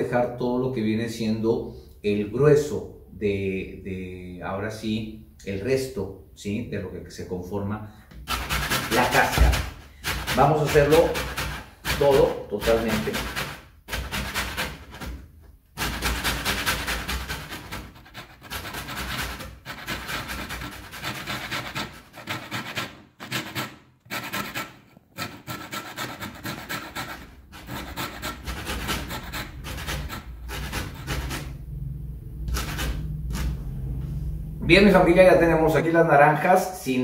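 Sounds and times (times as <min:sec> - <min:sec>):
peel rasping on a grater: 0:08.2 - 0:15.0, 0:15.8 - 0:31.5.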